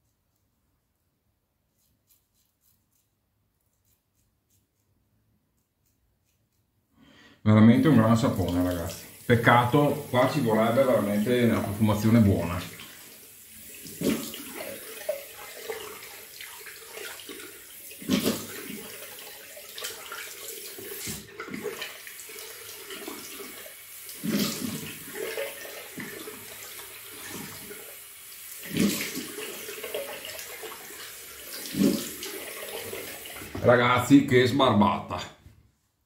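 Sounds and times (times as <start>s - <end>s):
tap water running into sink: 7.7s - 34.2s
water splashes: 7.7s - 34.4s.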